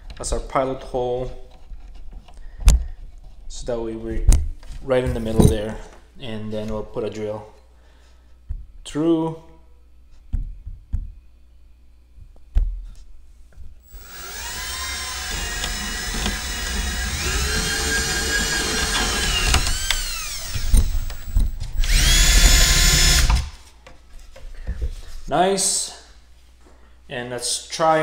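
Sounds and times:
power drill boring through plastic: 13.8 - 23.6.

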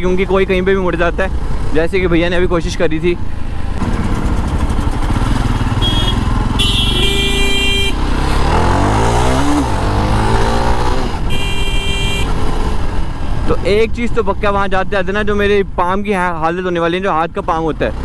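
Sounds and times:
motorcycle engine revving: 3.7 - 13.4
vehicle horn honking: 5.6 - 8.0, 11.2 - 12.4.

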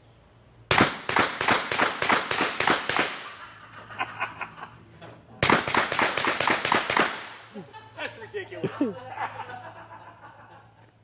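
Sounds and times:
rapid gunshots with echo: 0.7 - 3.4, 5.4 - 7.4.

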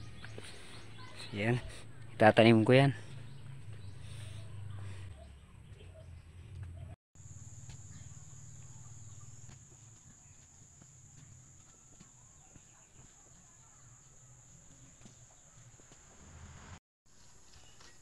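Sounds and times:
low rumble: 3.0 - 6.6.

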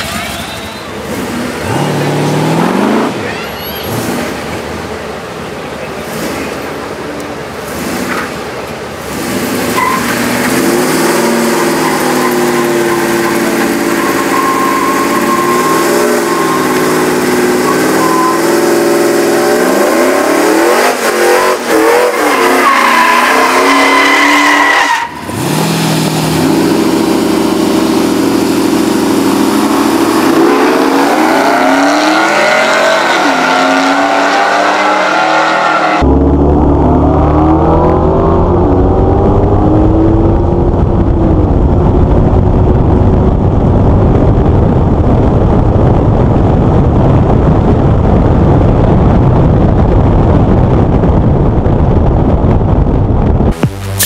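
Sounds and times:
truck engine revving: 0.0 - 42.0, 51.6 - 54.0
tyres spinning on pavement: 5.7 - 17.8.

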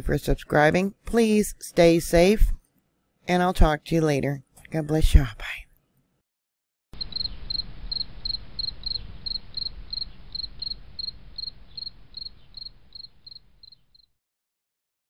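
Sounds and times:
low hiss: 7.0 - 13.6
cricket chirping: 7.0 - 14.1.

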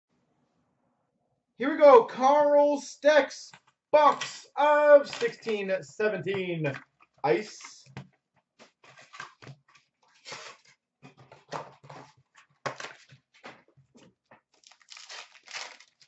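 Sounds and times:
foil packs crinkling and tearing: 14.6 - 16.0.

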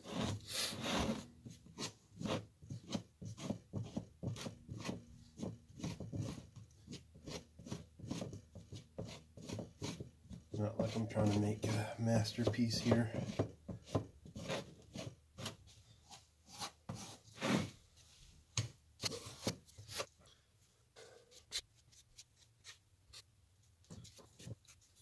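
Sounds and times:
stick scraping body filler: 0.0 - 17.8.

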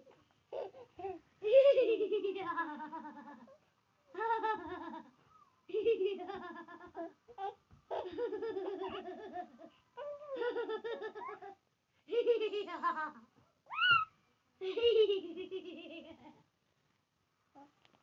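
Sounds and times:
young child laughing: 12.3 - 14.1
child squealing: 13.7 - 14.1.

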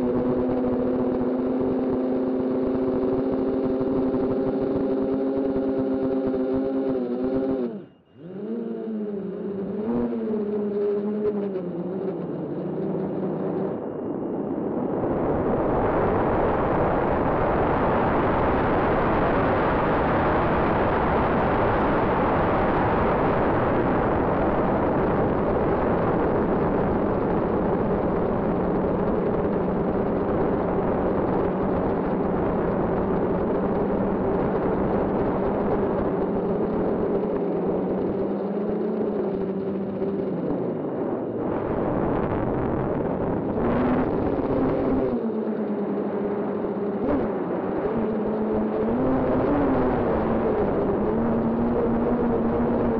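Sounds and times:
wind rush on microphone: 0.0 - 52.9.

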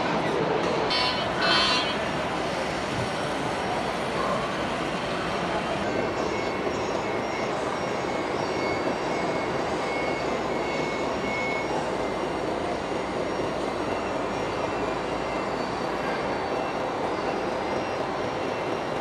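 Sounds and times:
exhibition hall din: 0.0 - 14.9
faint high-pitched tone: 0.9 - 2.6.

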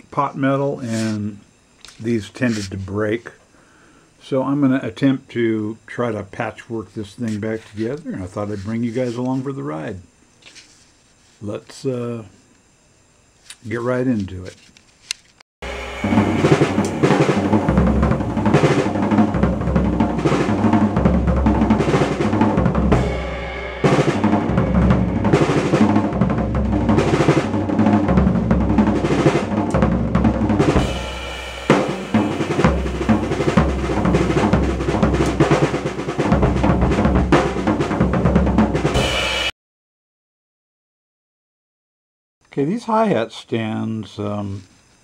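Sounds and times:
drum kit playing: 15.6 - 39.5.

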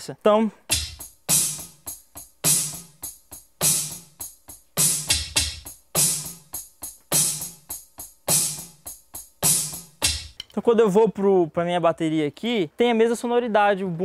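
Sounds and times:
electronic drum beat: 0.7 - 10.5.

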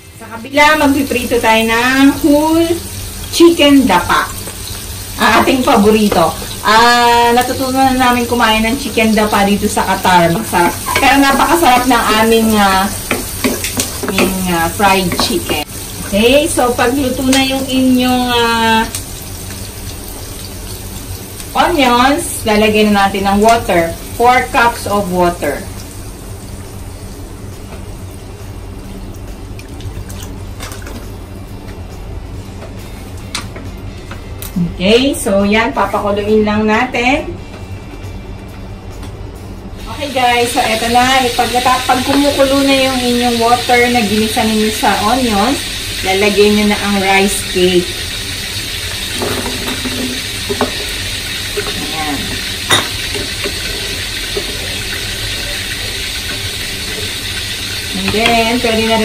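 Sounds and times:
chicken sizzling in oil: 0.0 - 30.5, 39.8 - 59.0
spatula knocking against pan: 13.0 - 14.4, 15.0 - 15.7.

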